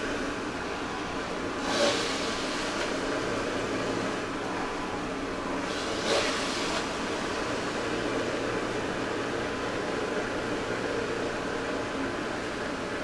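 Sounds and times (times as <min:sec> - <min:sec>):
electric juicer motor running: 0:01.4 - 0:04.6, 0:05.3 - 0:12.9.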